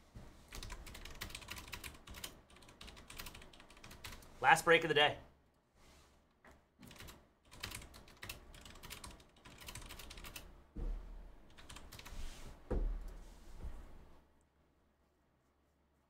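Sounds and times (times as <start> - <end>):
typing on computer keyboard: 0.5 - 4.3, 6.8 - 10.5, 11.5 - 12.1.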